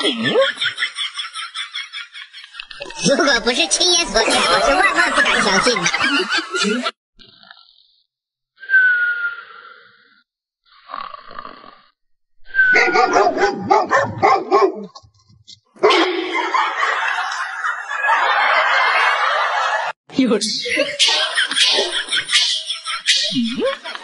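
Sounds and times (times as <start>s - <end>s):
dog barking: 12.7s - 14.9s, 15.8s - 16.1s, 21.3s - 22.5s.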